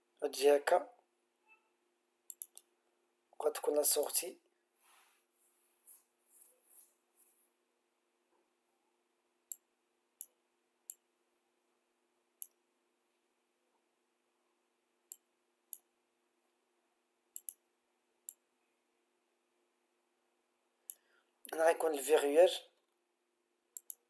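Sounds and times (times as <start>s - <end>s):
computer mouse clicking: 2.3s - 2.7s, 17.3s - 17.6s, 23.8s - 24.0s.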